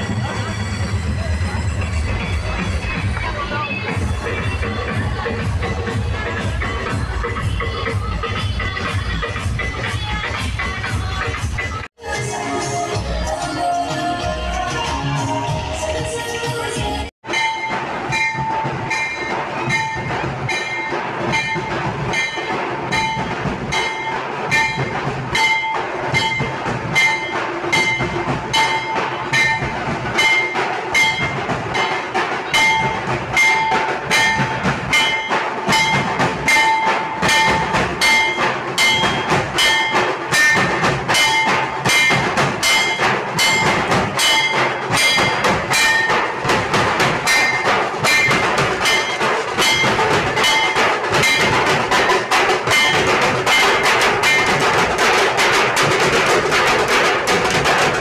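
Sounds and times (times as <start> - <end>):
barrel drums beaten with sticks: 17.2 - 58.0.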